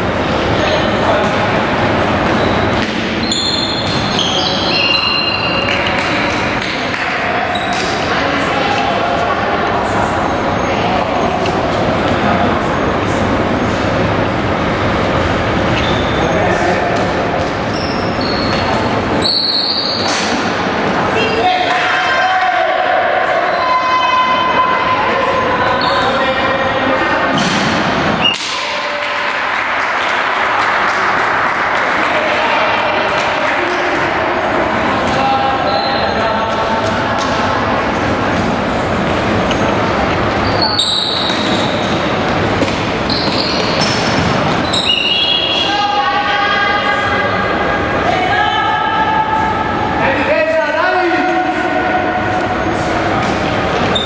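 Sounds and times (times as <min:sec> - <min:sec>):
hall noise: 0:00.0 - 0:54.0
noisy background: 0:00.0 - 0:54.0
shoes squeaking on court floor: 0:00.6 - 0:06.8, 0:07.4 - 0:08.9, 0:15.5 - 0:21.4, 0:35.1 - 0:45.7, 0:52.5 - 0:54.0
players shouting: 0:18.1 - 0:54.0.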